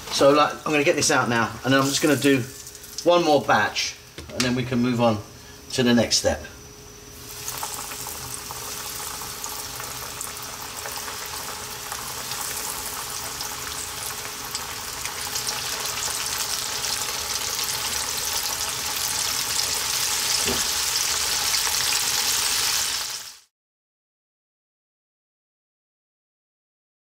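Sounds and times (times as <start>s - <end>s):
fish deep-frying in oil: 0.0s - 3.4s, 7.1s - 23.5s.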